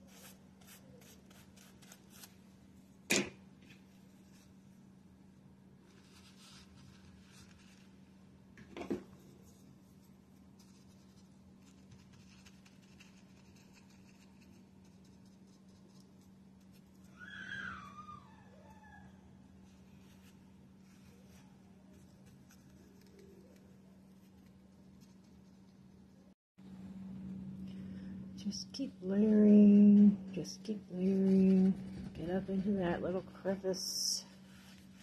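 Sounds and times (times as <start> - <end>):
animal call falling in pitch: 17.1 - 19.2
low hum: 17.8 - 35.0.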